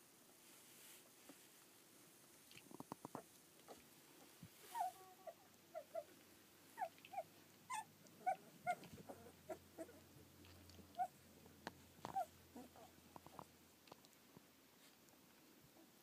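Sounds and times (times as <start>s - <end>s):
puppies whimpering: 4.7s - 6.1s, 6.8s - 10.1s, 12.1s - 13.4s.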